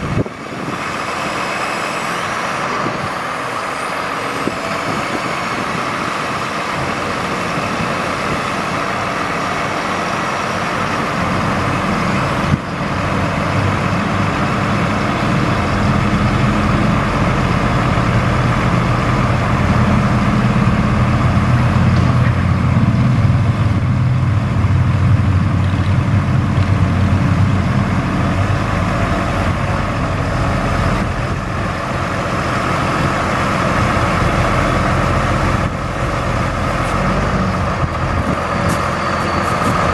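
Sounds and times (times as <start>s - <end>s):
truck engine running: 0.0s - 39.9s.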